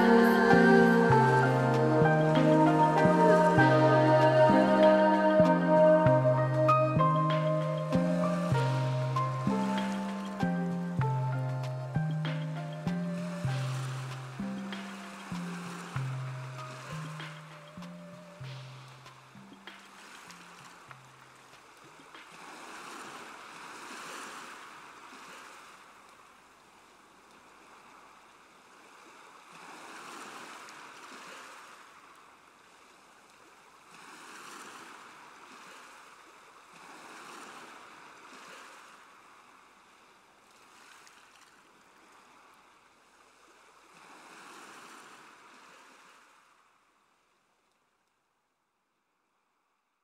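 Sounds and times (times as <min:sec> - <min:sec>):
ocean surf washing in: 0:00.0 - 0:21.4.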